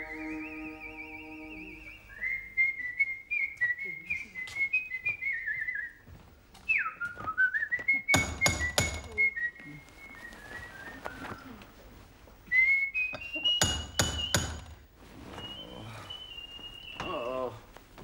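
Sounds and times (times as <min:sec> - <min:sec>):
man whistling a tune: 0:00.0 - 0:06.0, 0:06.7 - 0:11.6, 0:12.5 - 0:14.6, 0:15.4 - 0:17.4
light footsteps: 0:04.4 - 0:08.0.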